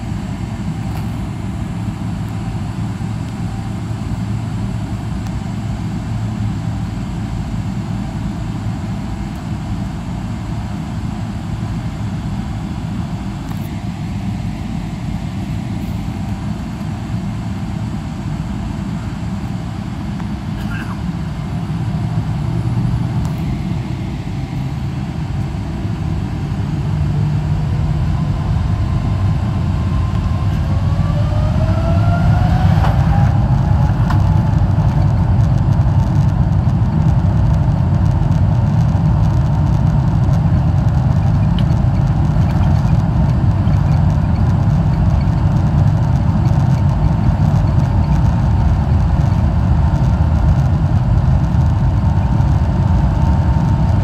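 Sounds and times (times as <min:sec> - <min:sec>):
jet engines spooling up: 0:11.3 - 0:54.0.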